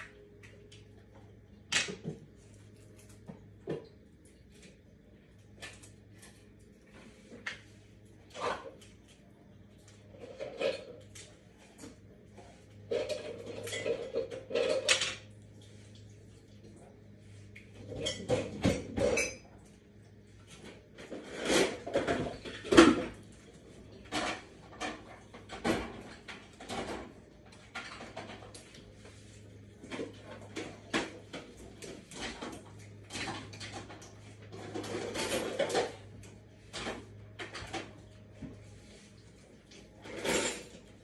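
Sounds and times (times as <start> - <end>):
low steady hum: 0.0 - 41.0
dishes and cutlery clinking: 12.8 - 15.3, 17.8 - 19.7, 40.0 - 41.0.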